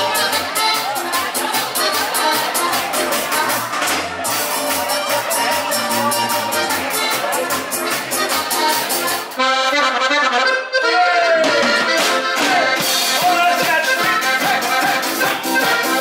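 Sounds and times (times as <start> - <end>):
accordion band music: 0.0 - 16.0.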